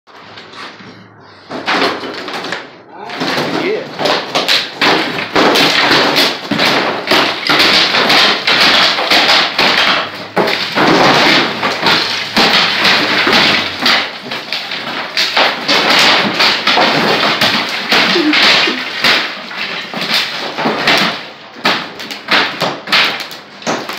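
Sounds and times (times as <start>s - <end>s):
hammer blows breaking masonry: 1.3s - 23.9s.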